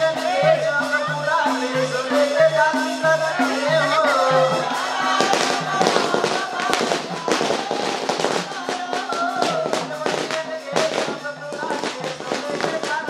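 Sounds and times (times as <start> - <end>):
music with repeating bass line: 0.0 - 13.0
firecrackers crackling: 5.0 - 13.0.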